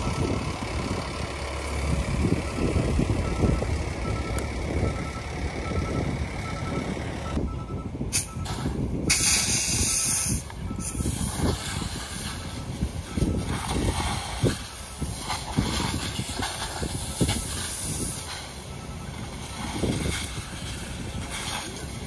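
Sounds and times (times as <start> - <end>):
wind buffeting microphone: 0.0 - 22.0
fire hose spraying water: 8.1 - 22.0.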